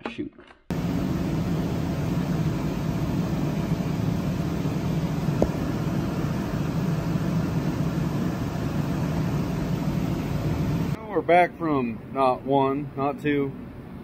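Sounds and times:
low machine drone: 0.7s - 11.0s.

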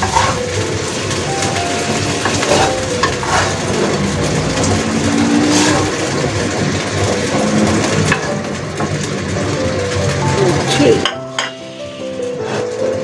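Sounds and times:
spatula scraping a pan: 0.0s - 0.4s, 2.2s - 3.8s
hot oil sizzling in a wok: 0.0s - 13.0s.

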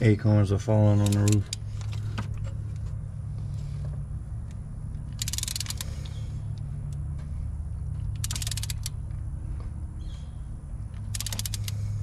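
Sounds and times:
steady low hum: 0.0s - 12.0s
hand ratchet clicking: 1.0s - 1.7s, 5.1s - 7.0s, 8.0s - 9.0s, 11.0s - 11.8s.

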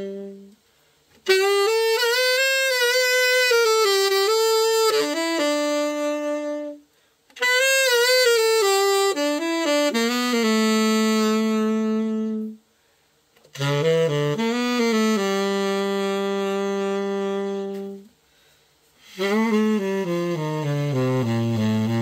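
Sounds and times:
tenor saxophone solo: 0.0s - 12.7s, 13.4s - 22.0s
player breathing: 18.2s - 19.1s.

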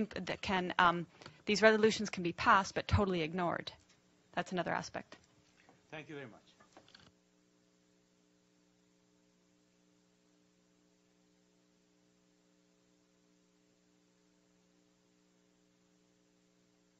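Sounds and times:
faint electrical mains hum: 0.0s - 16.9s
low hiss: 3.5s - 12.0s.

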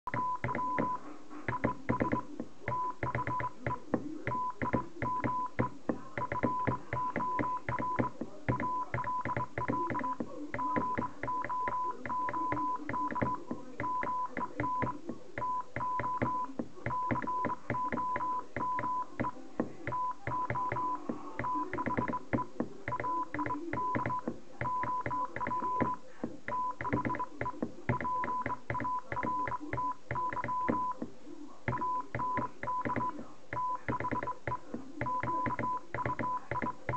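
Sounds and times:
morse code beeping: 0.1s - 31.0s, 31.7s - 36.9s.

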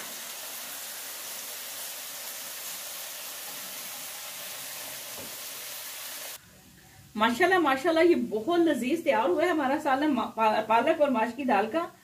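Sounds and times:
hot butter sizzling: 0.0s - 6.4s.

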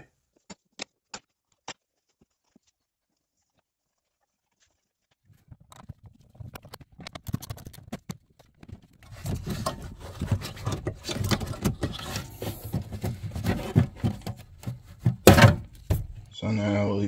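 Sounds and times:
plastic knocking and scraping: 5.3s - 16.3s.

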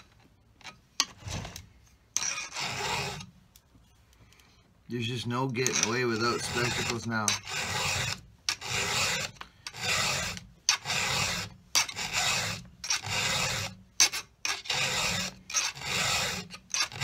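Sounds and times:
file rasping on chainsaw chain: 2.2s - 3.3s, 5.6s - 17.0s.

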